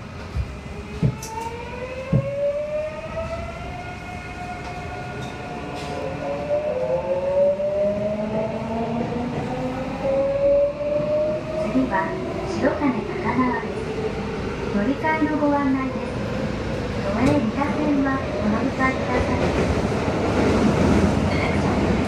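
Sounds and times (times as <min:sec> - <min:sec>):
train car rumble: 0:08.0 - 0:22.0.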